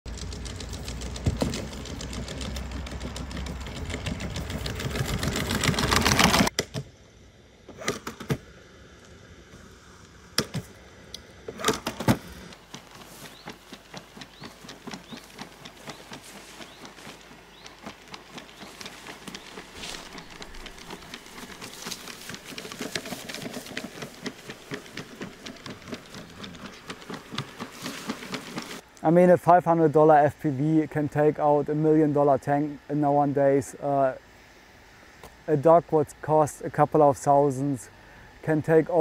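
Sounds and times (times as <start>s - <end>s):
scattered knocks: 0.1s - 6.5s
robot legs clicking and ticking: 12.6s - 28.8s
soft regular footsteps: 12.6s - 28.8s.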